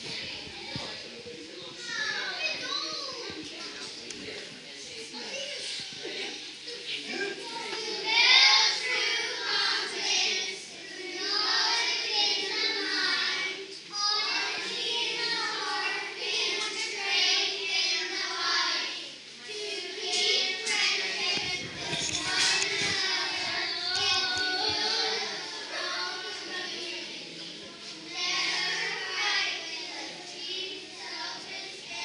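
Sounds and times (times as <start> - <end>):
children chanting in unison: 7.2 - 32.0.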